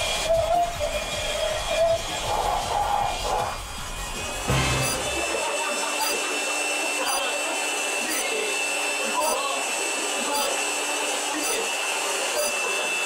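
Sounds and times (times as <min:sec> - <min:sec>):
leaf blower rushing air and whine: 0:00.0 - 0:13.0.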